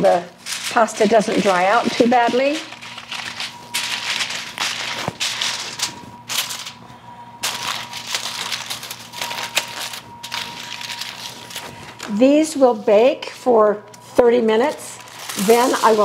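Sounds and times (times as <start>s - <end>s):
aluminium foil crinkling: 0.0s - 13.2s, 14.6s - 16.0s.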